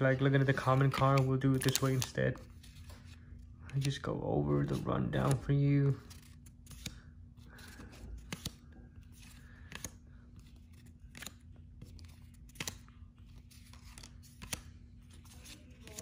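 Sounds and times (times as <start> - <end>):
cards flicking: 10.9 - 12.9.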